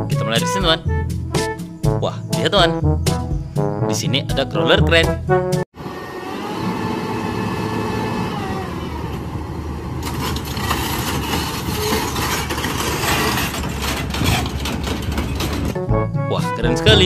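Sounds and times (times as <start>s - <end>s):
diesel engine running: 5.8s - 15.8s
rough engine clatter: 8.2s - 15.8s.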